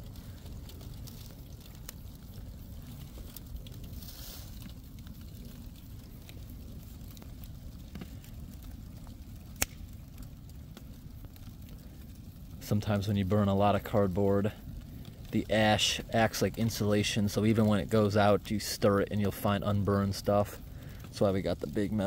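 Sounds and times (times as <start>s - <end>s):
fire burning and crackling: 0.0s - 22.0s
sharp pop from fire: 9.6s - 9.9s.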